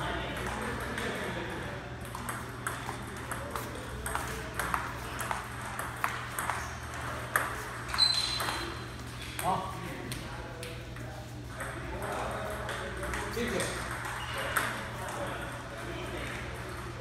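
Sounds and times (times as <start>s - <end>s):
short high squeak: 7.9s - 8.6s.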